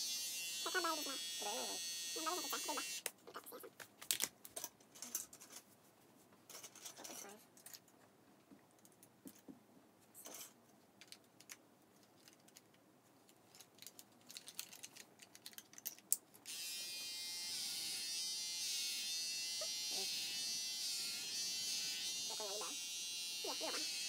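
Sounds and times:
electric hair clippers buzzing: 0.0 - 3.1, 16.5 - 24.0.

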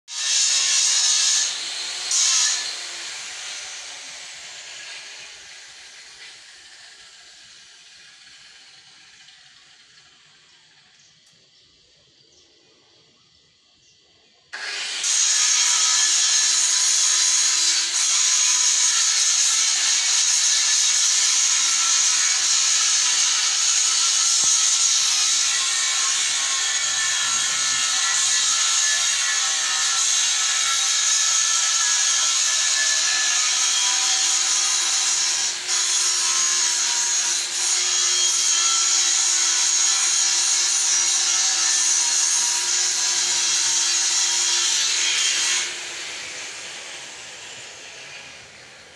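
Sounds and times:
power tool running: 0.2 - 10.9, 14.6 - 48.9.

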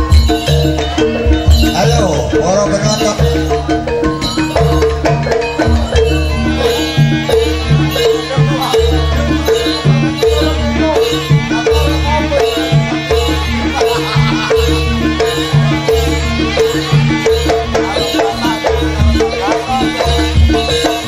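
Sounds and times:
drums and pitched percussion ensemble: 0.0 - 21.0.

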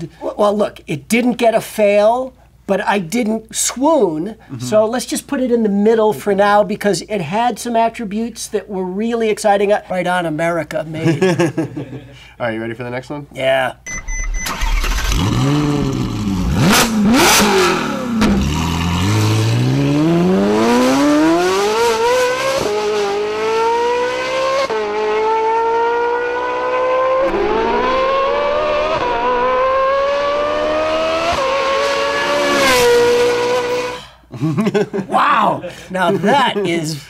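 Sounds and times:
car accelerating through gears: 14.7 - 34.0
sports car engine revving: 14.9 - 34.0.

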